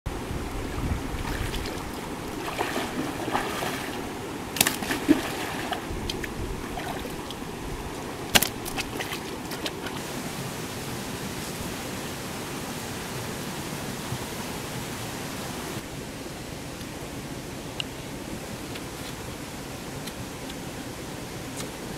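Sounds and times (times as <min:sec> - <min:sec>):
stream running over rocks: 0:00.1 - 0:21.9
hands splashing in water: 0:01.2 - 0:10.0.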